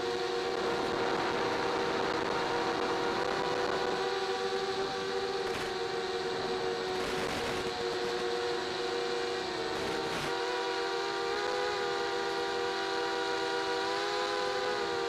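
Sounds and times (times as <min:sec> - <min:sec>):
model aircraft motor whining: 0:00.0 - 0:15.0.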